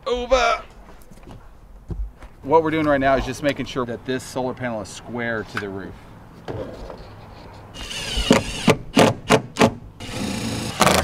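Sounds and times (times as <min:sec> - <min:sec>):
cordless drill motor whining: 0:07.8 - 0:08.7, 0:10.0 - 0:11.0.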